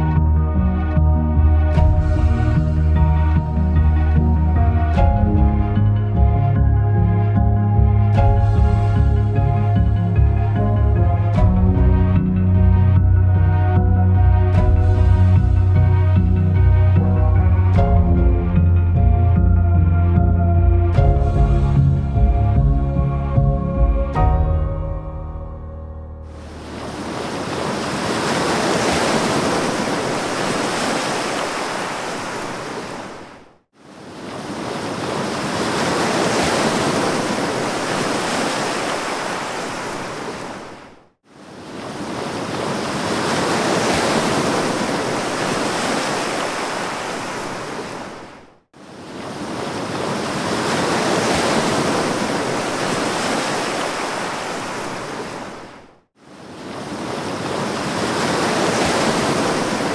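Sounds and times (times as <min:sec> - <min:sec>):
ocean surf rushing: 0:26.2 - 0:59.9.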